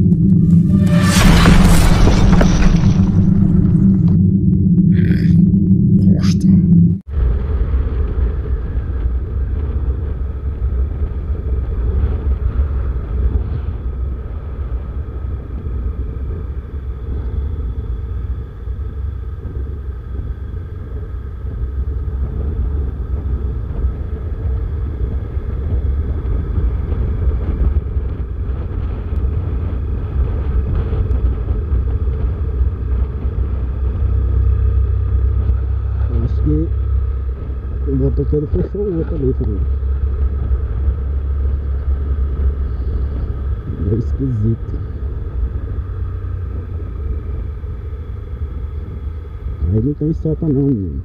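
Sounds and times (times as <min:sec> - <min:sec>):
motorcycle engine: 0:00.0 - 0:06.0, 0:16.3 - 0:43.7
wind buffeting microphone: 0:00.0 - 0:49.7
road noise: 0:00.0 - 0:51.0.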